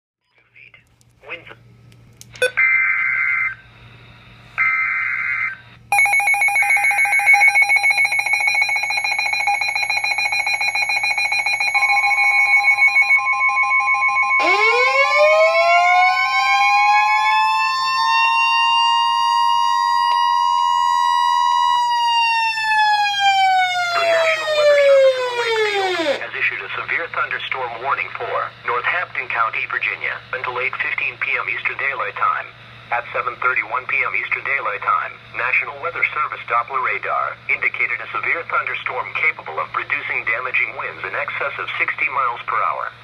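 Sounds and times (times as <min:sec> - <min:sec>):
pulsing alarm beeps: 0:02.4 - 0:03.8, 0:04.6 - 0:17.4
siren alert tone: 0:02.4 - 0:03.9, 0:04.6 - 0:26.2
steady warning tone: 0:02.4 - 0:26.2.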